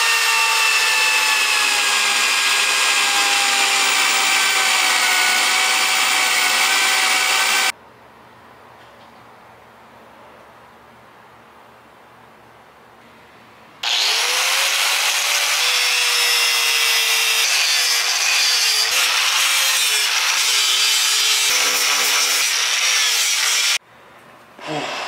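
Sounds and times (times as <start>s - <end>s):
angle grinder sanding wood: 0.0s - 7.7s, 13.8s - 23.8s.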